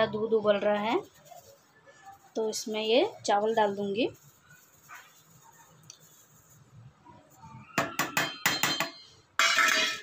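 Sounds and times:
steel plate tapping metal pot: 0:07.8 - 0:10.0.

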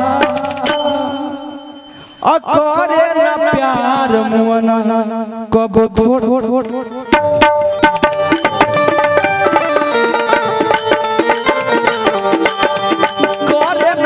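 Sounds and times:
hand drums in a fast rhythm: 0:00.2 - 0:00.8, 0:07.5 - 0:14.0
held melody notes: 0:07.7 - 0:14.0.

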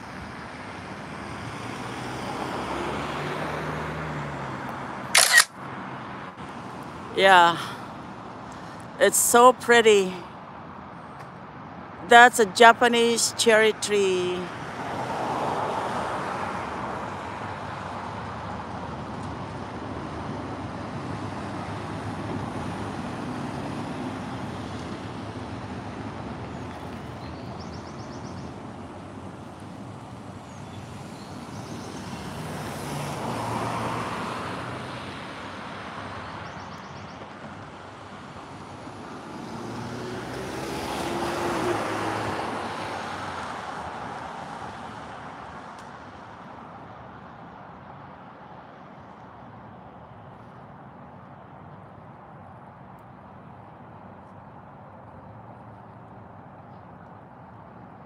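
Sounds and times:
passing cars traffic noise: 0:00.0 - 0:58.0
car driving past: 0:39.2 - 0:43.8.

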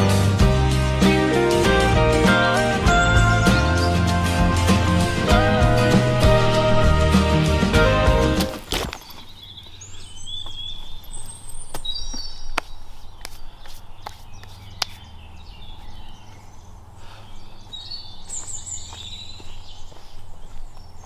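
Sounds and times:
birds chirping: 0:00.0 - 0:21.0
dry leaves crackling: 0:08.4 - 0:15.0.

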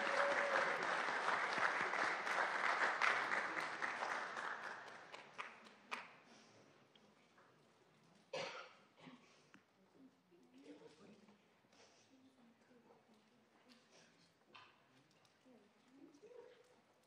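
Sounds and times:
audience applauding: 0:00.0 - 0:06.1.

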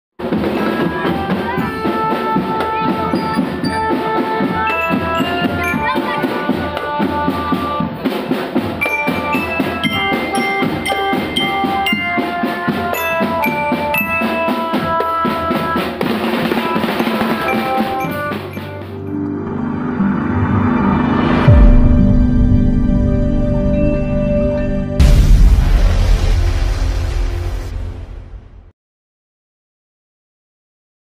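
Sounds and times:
snare and bass drums: 0:00.2 - 0:19.0
melody of held notes: 0:00.8 - 0:08.2, 0:08.8 - 0:25.1.

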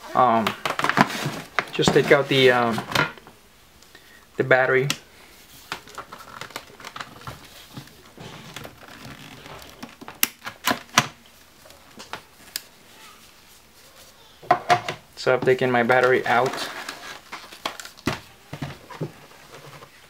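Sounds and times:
soft handling rustle: 0:05.2 - 0:10.2, 0:11.2 - 0:14.4, 0:15.2 - 0:20.0.

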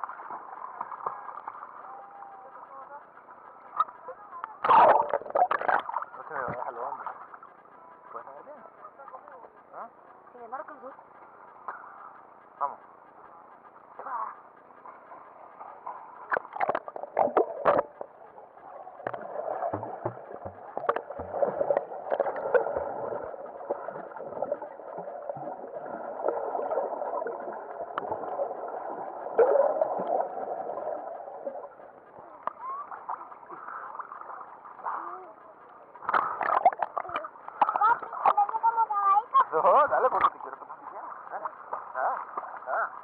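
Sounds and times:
muffled underwater wash: 0:00.0 - 0:43.0
sea water splashing: 0:03.6 - 0:07.6, 0:14.8 - 0:43.0.

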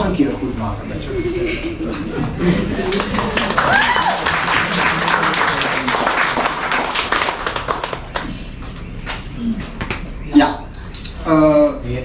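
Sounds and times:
audience applauding: 0:02.4 - 0:08.4.

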